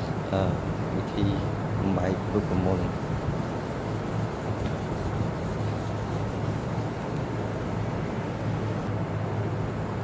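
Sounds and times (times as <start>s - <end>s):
steady low hum: 0.0s - 10.0s
wipe rubbing laminated sheet: 2.3s - 7.2s.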